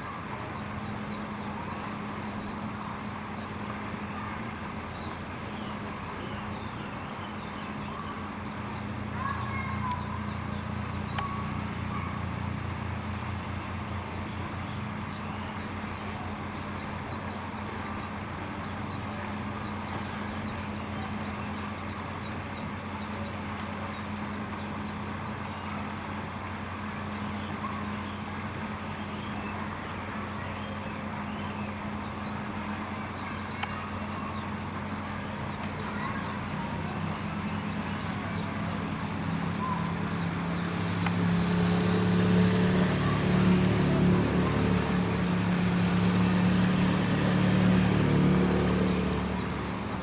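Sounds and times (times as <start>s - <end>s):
outdoor background hum: 0.0s - 50.0s
faint high chirps: 5.6s - 12.2s.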